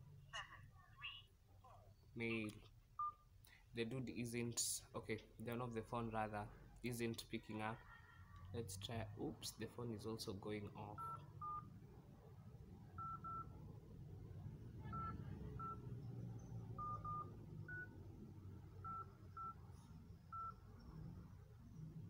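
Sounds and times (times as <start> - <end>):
phone keypad beeps: 3.0 - 3.2, 11.0 - 11.6, 13.0 - 13.5, 14.9 - 15.8, 16.8 - 18.0, 18.8 - 19.6.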